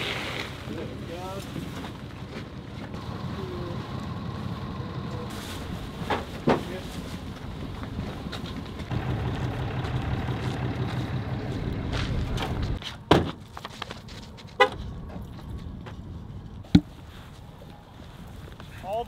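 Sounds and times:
vehicle engine running: 0:01.9 - 0:06.3, 0:06.9 - 0:12.8.

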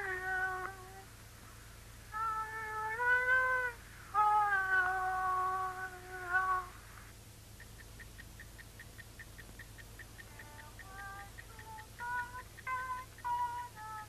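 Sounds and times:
clock ticking: 0:07.6 - 0:13.5.

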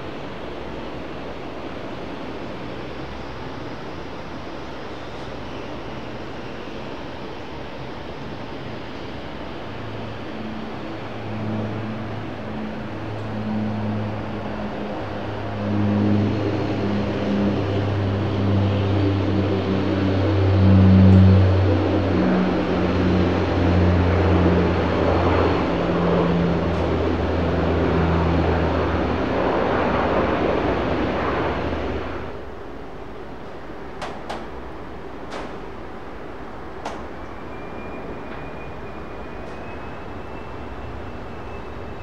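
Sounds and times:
aircraft engines humming: 0:00.0 - 0:42.0.

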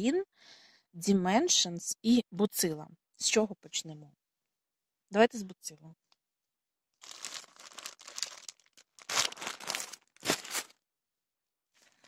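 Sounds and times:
packaging crinkling and rustling: 0:07.0 - 0:10.8.

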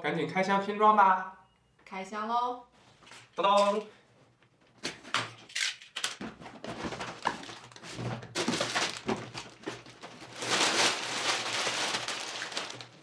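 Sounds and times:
plastic bags crinkling: 0:06.8 - 0:13.0.

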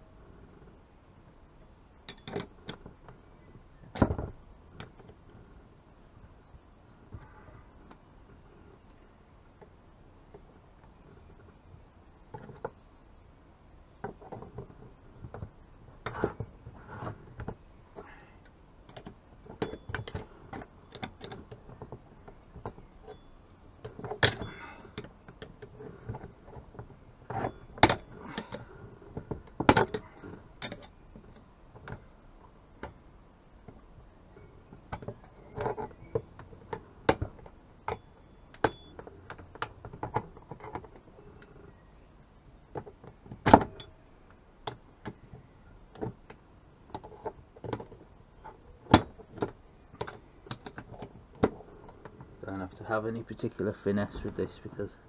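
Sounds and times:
hand tools clicking and knocking: 0:23.8 - 0:32.0.

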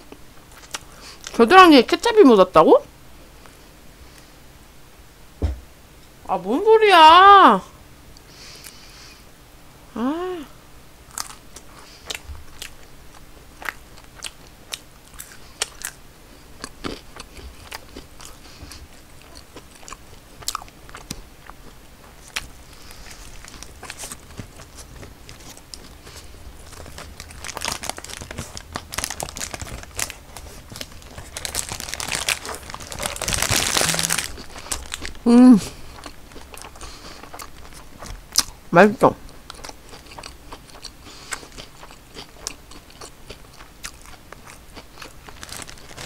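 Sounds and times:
crunchy food chewing: 0:00.1 - 0:01.4, 0:11.1 - 0:38.6, 0:39.2 - 0:46.0.

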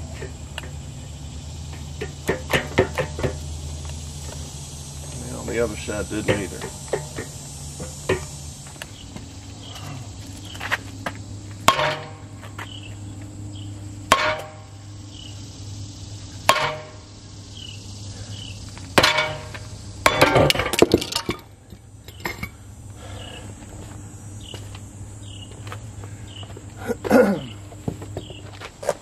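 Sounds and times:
metal ringing: 0:11.6 - 0:12.3, 0:14.1 - 0:14.8, 0:16.5 - 0:17.1, 0:19.0 - 0:21.5
hammer striking metal hub: 0:11.7 - 0:12.2, 0:14.1 - 0:14.7, 0:16.5 - 0:17.0, 0:19.0 - 0:21.4.

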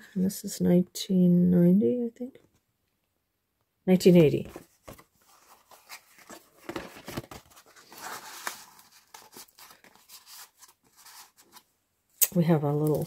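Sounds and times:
paper and card rustling: 0:04.0 - 0:11.7, 0:12.6 - 0:13.0.

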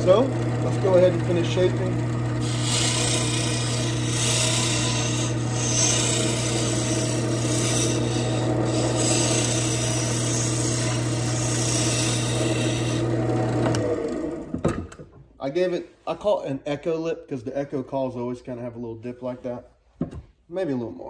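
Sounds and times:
turning tool scraping wood: 0:00.0 - 0:14.1
lathe motor hum: 0:00.0 - 0:14.6.

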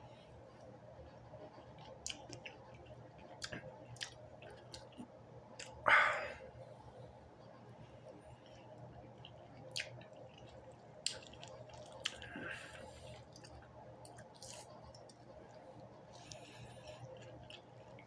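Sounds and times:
person chewing wetly: 0:01.6 - 0:05.8, 0:08.1 - 0:18.0.

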